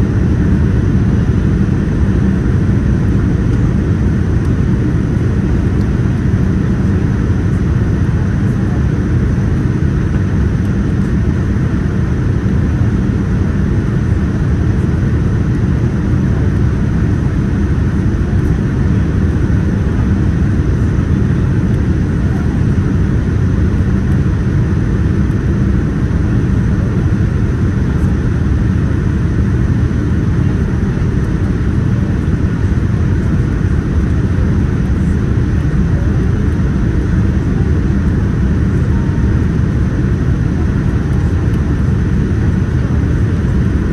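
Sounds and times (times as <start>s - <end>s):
airliner cabin roar: 0.0s - 43.9s.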